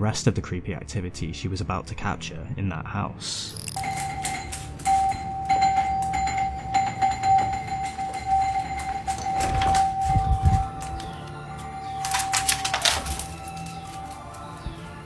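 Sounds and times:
electric doorbell steady tone: 0:03.6 - 0:14.6
heavy bumps: 0:04.0 - 0:11.1.

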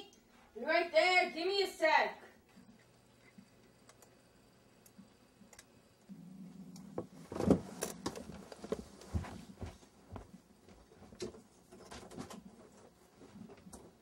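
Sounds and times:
low steady hum: 0:00.0 - 0:14.0
desk chair rustling and knocks: 0:07.0 - 0:12.6.

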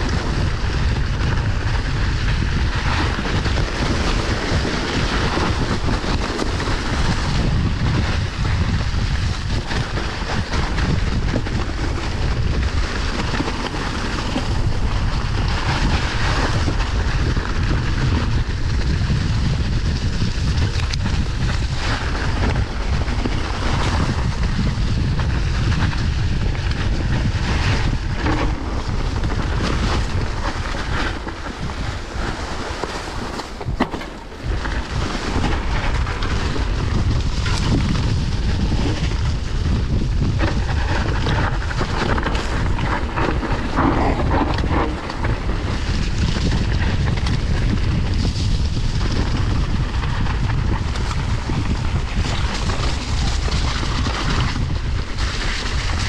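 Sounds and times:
bike knocking and rattling: 0:00.0 - 0:56.0
wind buffeting microphone: 0:00.0 - 0:56.0
tyres rolling over leaves and dirt: 0:27.3 - 0:48.1.

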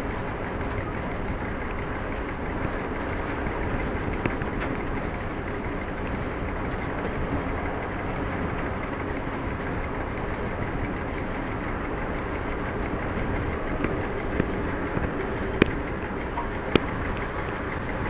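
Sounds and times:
diesel locomotive engine: 0:00.0 - 0:18.0
wheels on rails: 0:00.0 - 0:18.0
sharp clicks: 0:12.9 - 0:18.0.

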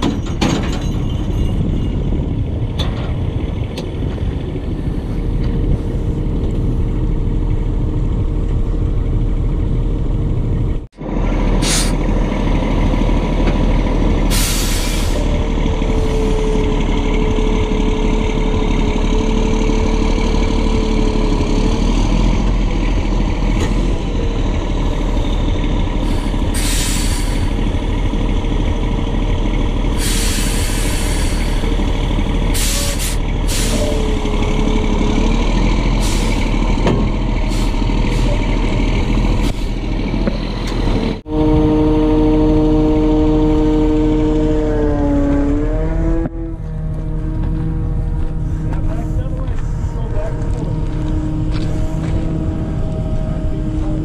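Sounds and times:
diesel truck engine running: 0:00.0 - 0:54.0
air brake hisses: 0:11.6 - 0:12.0, 0:14.3 - 0:15.3, 0:26.0 - 0:27.6, 0:30.0 - 0:31.7, 0:32.6 - 0:34.0.

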